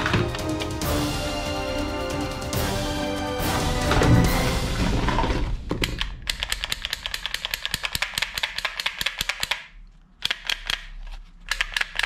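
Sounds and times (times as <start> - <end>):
toy pistol clicking: 5.8 - 12.0.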